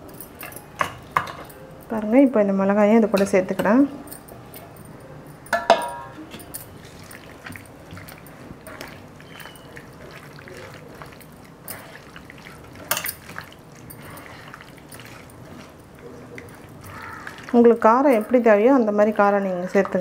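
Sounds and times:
hand squishing wet marinade: 6.3s - 20.0s.

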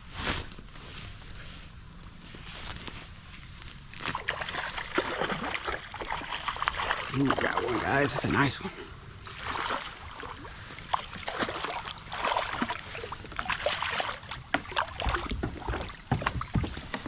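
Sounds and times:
fish splashing at water surface: 4.1s - 8.3s, 9.2s - 16.4s.

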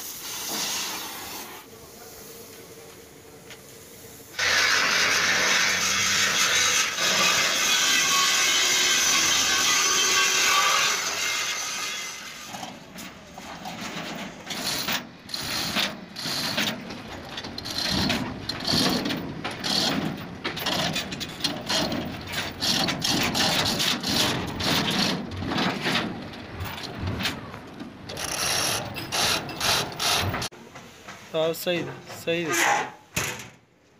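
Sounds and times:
steel chain rattling and clanking: 13.7s - 27.0s.

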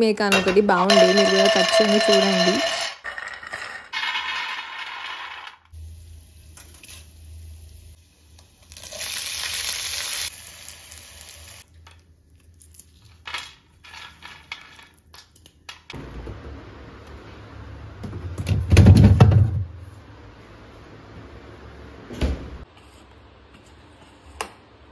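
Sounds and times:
peanuts rattling onto steel plate: 0.3s - 5.5s
food sizzling in oil: 5.8s - 11.6s.

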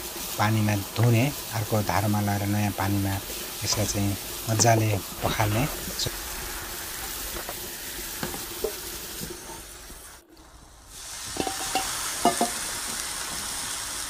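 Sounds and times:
tap water running into colander: 11.1s - 13.7s.

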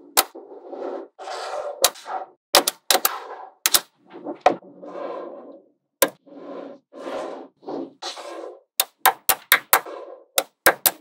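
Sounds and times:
balls rattling and rolling: 1.8s - 11.0s.

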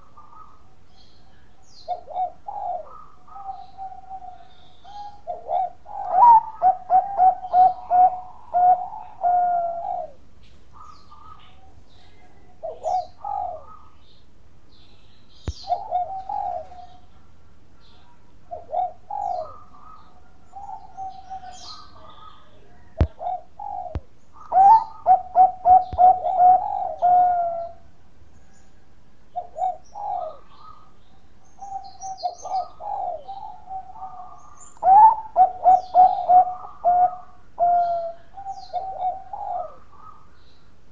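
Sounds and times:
dove cooing: 0.0s - 14.1s, 15.5s - 40.4s.

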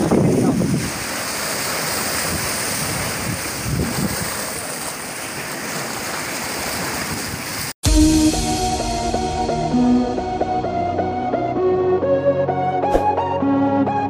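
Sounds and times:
waves breaking against boulders: 0.0s - 7.7s.

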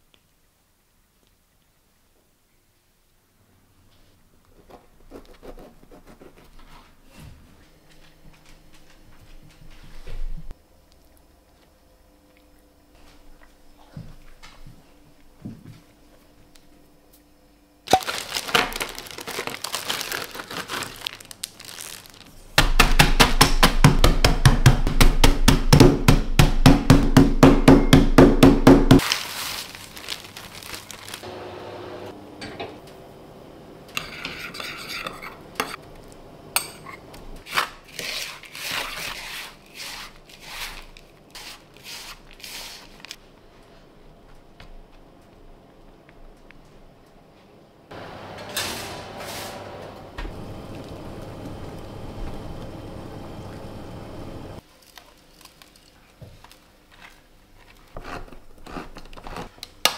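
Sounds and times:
crumbs rustling in a bowl: 17.9s - 22.6s, 29.0s - 31.3s, 37.5s - 43.6s, 54.6s - 58.5s
plastic bag crinkling: 17.9s - 22.6s, 29.0s - 31.3s, 54.6s - 58.0s.

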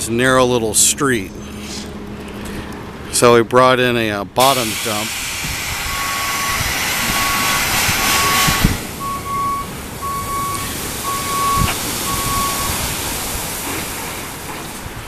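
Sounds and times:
loud air hiss: 4.4s - 9.0s
truck backup alarm beeping: 4.7s - 13.6s.

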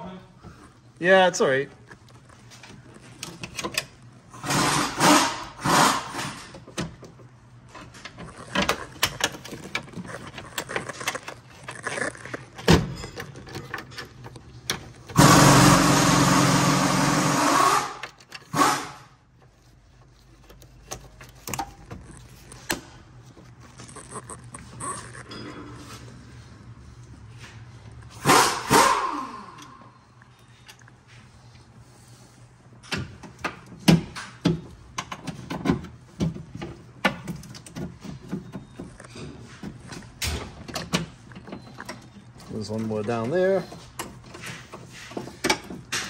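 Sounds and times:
loud mechanical noise: 3.2s - 7.0s, 7.8s - 19.2s, 28.1s - 29.9s.

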